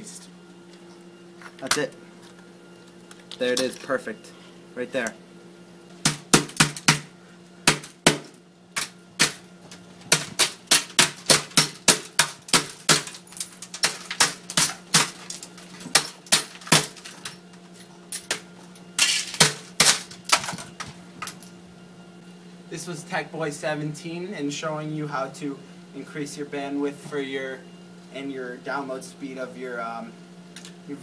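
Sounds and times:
hatchet chopping into circuit boards: 6.0s - 9.4s, 10.1s - 17.4s, 19.0s - 20.9s.

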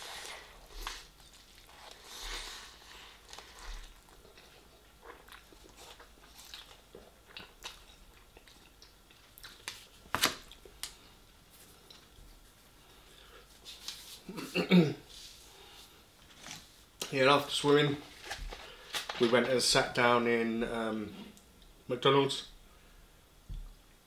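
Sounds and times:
chewing noodles: 0.8s - 9.6s.

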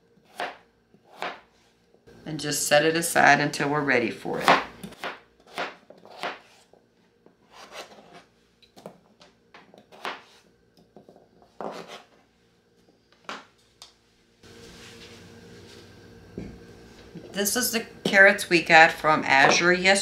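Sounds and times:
knife chopping on cutting board: 0.2s - 1.5s, 4.4s - 6.6s, 9.7s - 10.4s, 11.6s - 12.1s.

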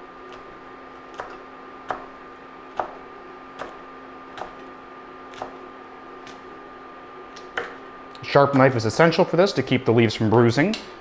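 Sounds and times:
steady hum: 0.0s - 11.0s
knife chopping on cutting mat: 0.3s - 4.6s, 5.3s - 5.6s.

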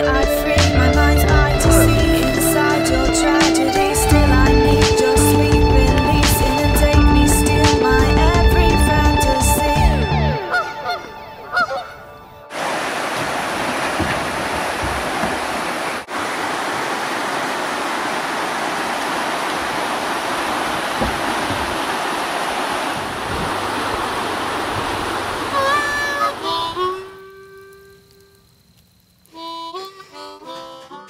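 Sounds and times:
river rapids rushing: 0.5s - 9.9s, 12.5s - 27.6s
goose honks: 7.7s - 12.1s, 23.7s - 27.8s.

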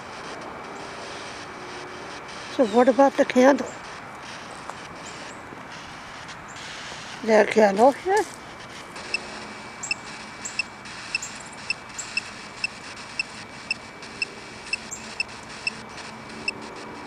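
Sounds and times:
device high-pitched beeps: 9.8s - 15.8s.

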